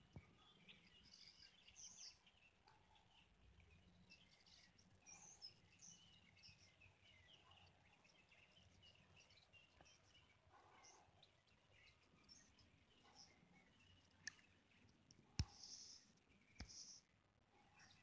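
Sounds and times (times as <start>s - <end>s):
small birds chirping: 0.0s - 18.0s.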